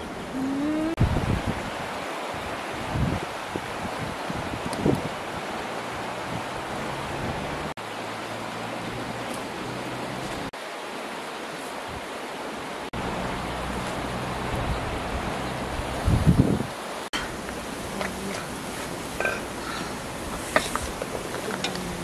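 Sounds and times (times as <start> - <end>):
wind noise on microphone: 0.0 - 7.7, 13.7 - 16.8
low wind buffeting: 0.0 - 10.5, 13.0 - 22.0.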